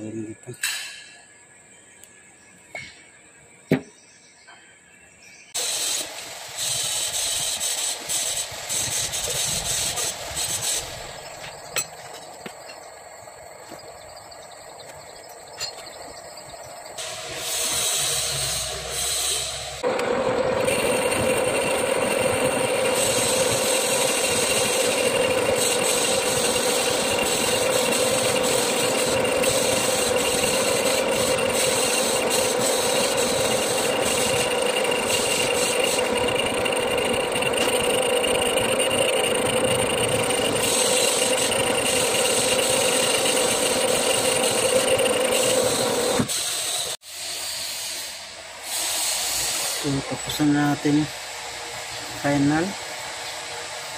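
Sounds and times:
metal lathe cutting steel: 0:05.6 - 0:13.2, 0:16.7 - 0:47.0.

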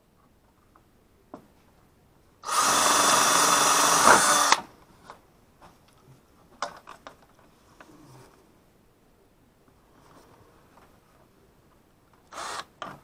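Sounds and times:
cordless drill boring a hole: 0:02.4 - 0:04.6, 0:12.3 - 0:12.7.

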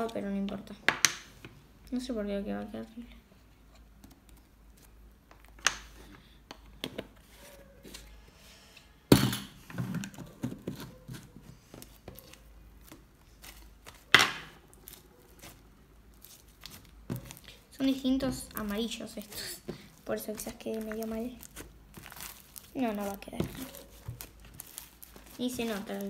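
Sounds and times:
slime squishing: 0:10.1 - 0:26.0.

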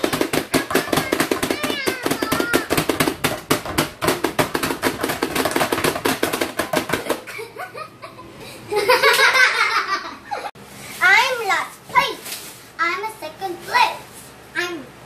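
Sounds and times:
plastic plungers clacking: 0:00.0 - 0:07.2.

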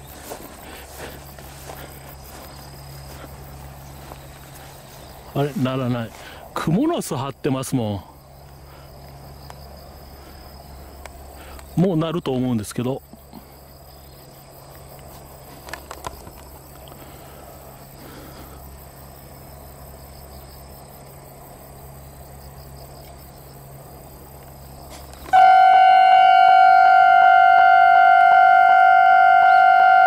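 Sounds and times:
insects chirping: 0:00.0 - 0:30.0
level crossing alarm bell ringing: 0:25.4 - 0:30.0.

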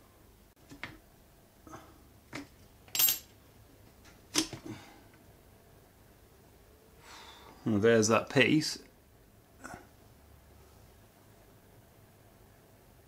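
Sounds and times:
metal parts clicking and clinking: 0:02.4 - 0:03.4.

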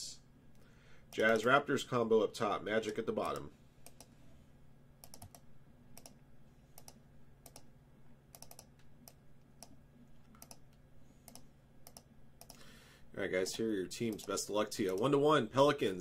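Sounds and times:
keyboard clicking: 0:05.0 - 0:05.4, 0:06.0 - 0:06.2, 0:08.3 - 0:12.6.

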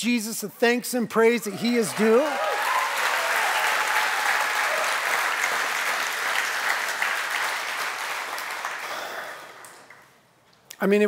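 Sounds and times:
crowd applauding: 0:01.5 - 0:10.2.

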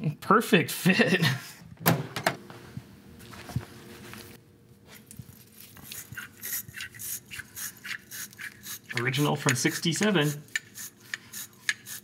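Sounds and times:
scraping and rubbing strokes: 0:03.4 - 0:12.0.

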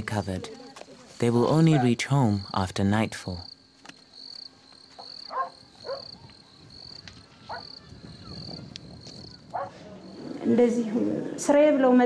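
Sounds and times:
insect chirping: 0:00.0 - 0:11.0
swooping animal calls: 0:05.0 - 0:10.4.

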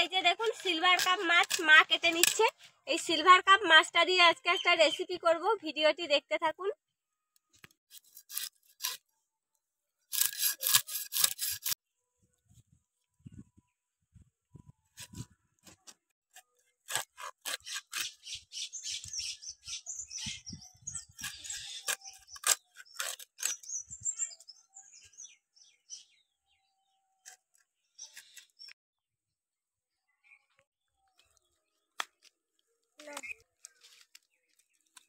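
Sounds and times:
fish scales scraped on blade: 0:07.9 - 0:09.0, 0:10.1 - 0:11.8, 0:16.9 - 0:18.4, 0:21.0 - 0:23.8.

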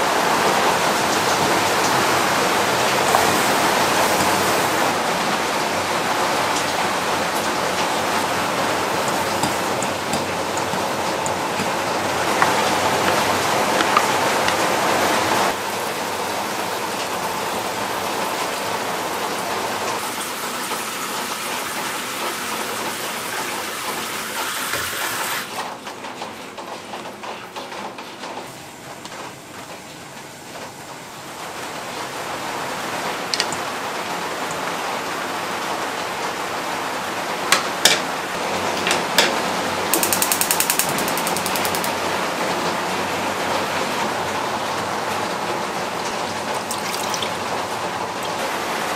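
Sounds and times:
gas stove igniter ticking: 0:39.9 - 0:41.9
broth boiling and bubbling: 0:45.6 - 0:48.9.

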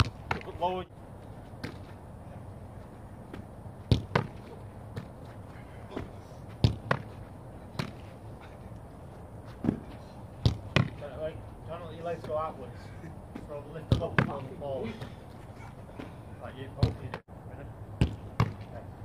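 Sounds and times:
ball bouncing: 0:00.0 - 0:00.6, 0:03.3 - 0:05.2, 0:06.6 - 0:08.0, 0:09.6 - 0:11.0, 0:13.4 - 0:14.4, 0:18.0 - 0:18.7
football caught in gloves: 0:00.0 - 0:00.6, 0:03.3 - 0:05.1, 0:05.9 - 0:07.1, 0:07.7 - 0:08.0, 0:09.6 - 0:11.0, 0:18.0 - 0:18.7.

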